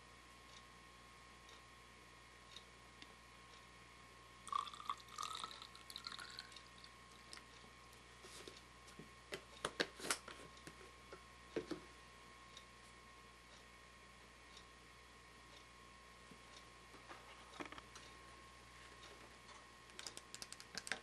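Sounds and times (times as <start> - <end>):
liquid pouring into plastic cup: 4.5 - 7.4
sharp clicks and taps: 19.9 - 21.0.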